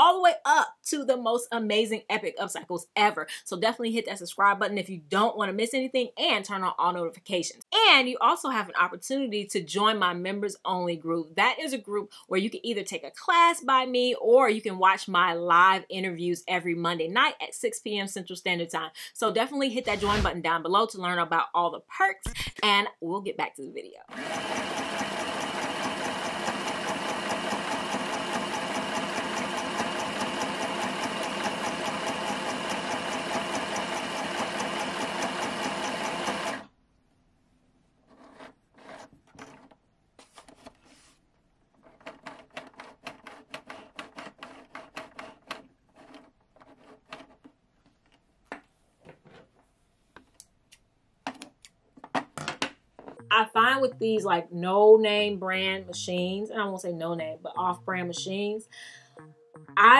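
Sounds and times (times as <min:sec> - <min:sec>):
sewing machine stitching: 0:19.8 - 0:20.4, 0:24.1 - 0:36.7.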